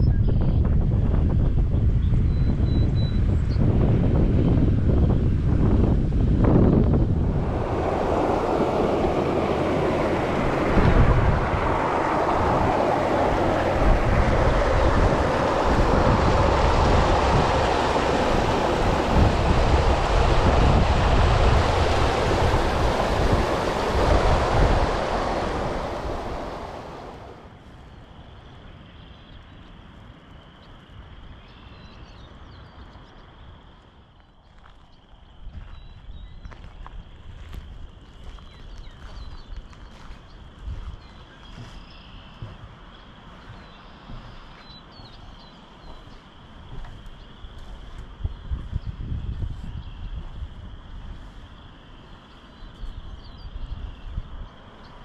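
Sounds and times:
wind rumbling on microphone: 0:00.0 - 0:55.0
creek water rushing over rocks: 0:07.2 - 0:27.5.

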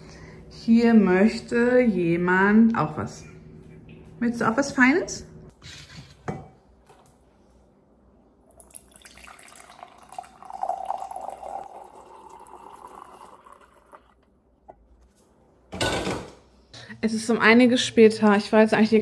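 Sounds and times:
coffee pouring into a mug: 0:08.5 - 0:14.2.

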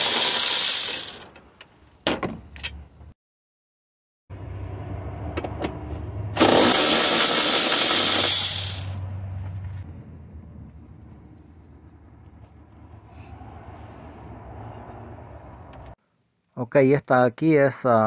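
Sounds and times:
low hum: 0:04.3 - 0:06.4
power ratchet whirring: 0:06.4 - 0:09.0.

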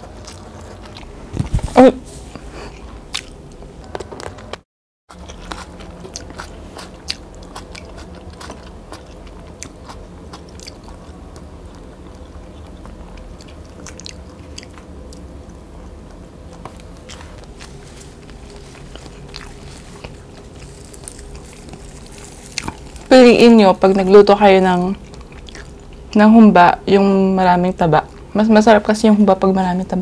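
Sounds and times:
person chewing food: 0:00.0 - 0:01.6, 0:02.3 - 0:04.4, 0:05.1 - 0:23.5, 0:25.0 - 0:26.1.

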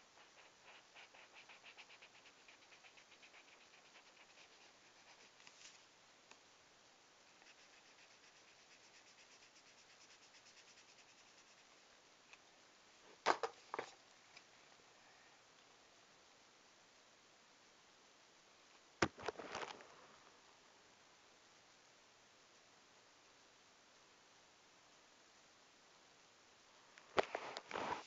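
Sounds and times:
marker scribbling on paper: 0:00.1 - 0:05.5, 0:07.4 - 0:11.7.

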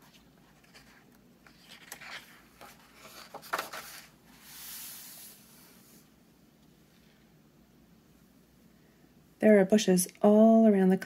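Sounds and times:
paper page turning: 0:00.0 - 0:05.3.

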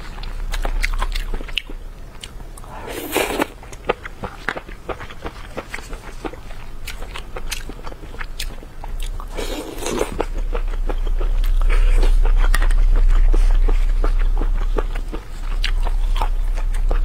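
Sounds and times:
close chewing with mouth clicks: 0:00.0 - 0:17.0
low steady rumble: 0:00.0 - 0:17.0.

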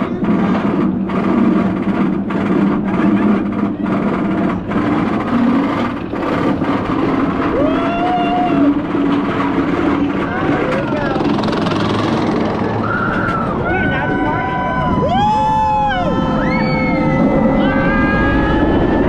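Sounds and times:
continuous rumble: 0:00.0 - 0:19.0
voices: 0:10.0 - 0:19.0.

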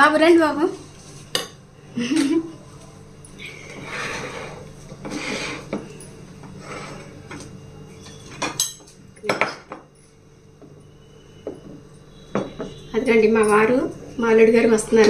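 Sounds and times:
plates and utensils clattering: 0:03.7 - 0:09.9
dishes clinking: 0:05.1 - 0:10.0, 0:11.4 - 0:12.8.

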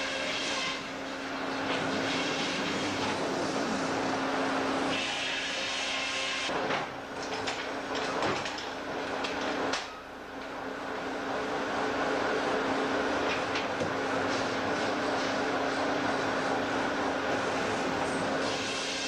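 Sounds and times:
sawmill engine hum: 0:00.0 - 0:19.0
knocks and clatters: 0:06.6 - 0:09.9.

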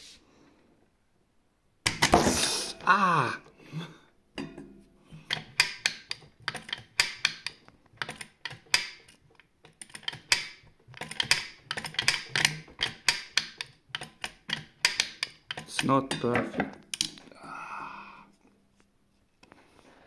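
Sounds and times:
sharp metal clicks and clacks: 0:05.3 - 0:17.1.

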